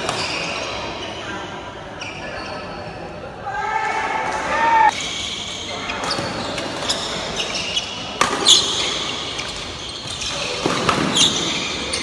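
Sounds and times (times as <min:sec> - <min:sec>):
shoes squeaking on court floor: 0:00.0 - 0:03.0, 0:04.9 - 0:12.0
racket hitting shuttlecock: 0:08.2 - 0:09.0.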